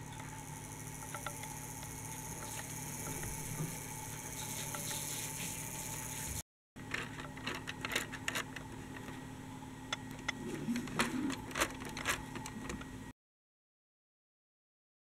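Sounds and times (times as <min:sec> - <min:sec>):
steady low hum: 0:00.0 - 0:13.1
plastic toy clicks and rattles: 0:06.8 - 0:09.1, 0:10.2 - 0:12.9.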